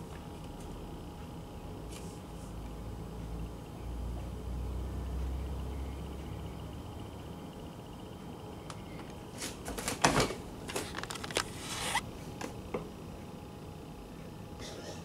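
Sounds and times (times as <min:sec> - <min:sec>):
handling rustles and clicks: 0:09.7 - 0:12.0.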